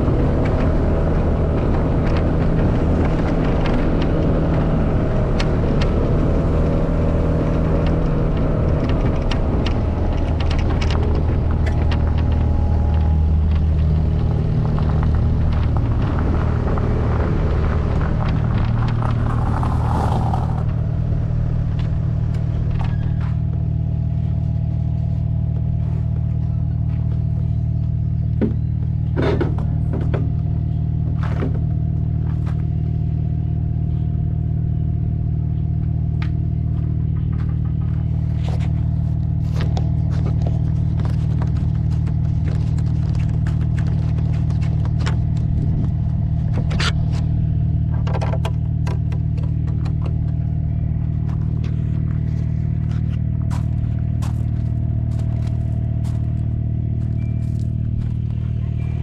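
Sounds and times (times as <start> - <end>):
stones rattling under wheels: 0.0 - 23.4, 36.7 - 59.0
vehicle engine running: 0.0 - 59.0.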